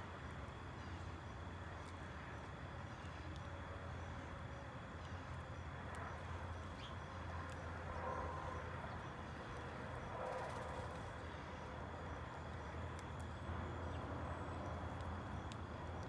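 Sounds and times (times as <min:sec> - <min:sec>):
faint sharp ticks: 0:12.9 - 0:13.3.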